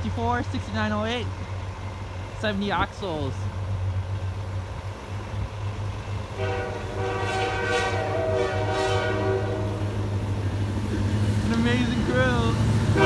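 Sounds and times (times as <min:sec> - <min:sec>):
train rumble: 0:00.0 - 0:13.0
locomotive air horn: 0:06.3 - 0:10.0.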